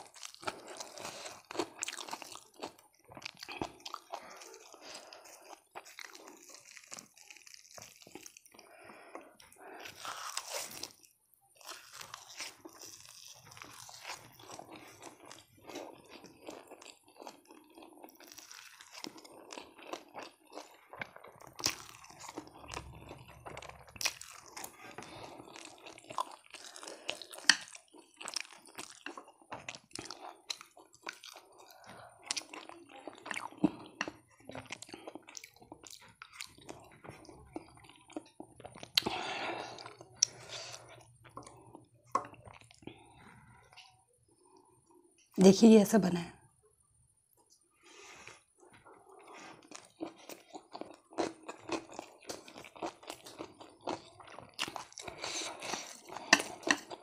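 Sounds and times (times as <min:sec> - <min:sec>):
person crunching and chewing: 0:00.0 - 0:45.3, 0:47.8 - 0:57.0.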